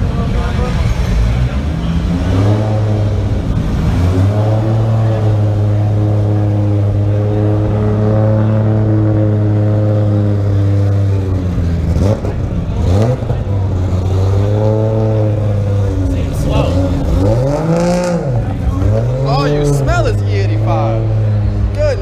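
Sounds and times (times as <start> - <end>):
car engine and exhaust drone: 0.0 - 22.0.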